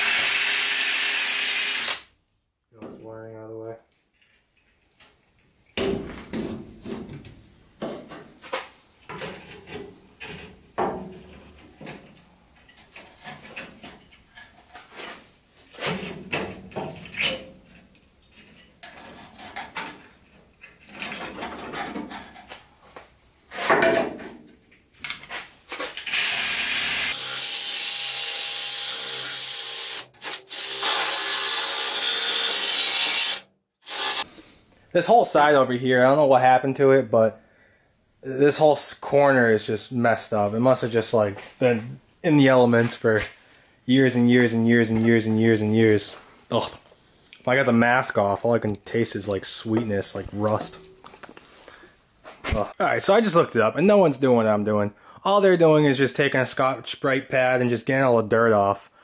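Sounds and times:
wiring rustling and clunking: 0:03.9 - 0:26.0
drill wire brush scraping rust: 0:26.0 - 0:34.3.

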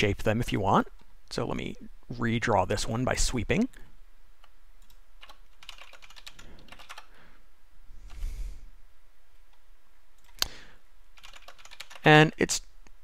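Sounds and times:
computer keyboard typing: 0:04.8 - 0:07.1, 0:11.2 - 0:12.1.

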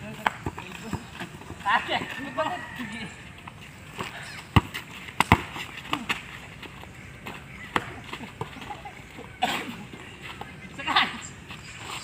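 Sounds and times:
basketball bouncing on dirt: 0:00.0 - 0:09.1.

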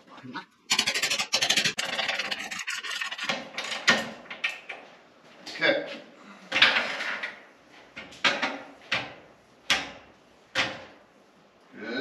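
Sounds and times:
metal parts scraping: 0:00.7 - 0:03.9.

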